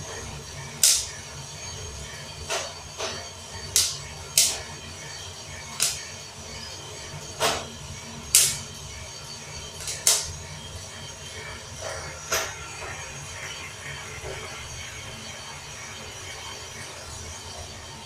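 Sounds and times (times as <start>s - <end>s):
coffee beans cracking: 0.8s - 1.1s, 3.8s - 4.6s, 5.8s - 6.0s, 9.8s - 10.3s.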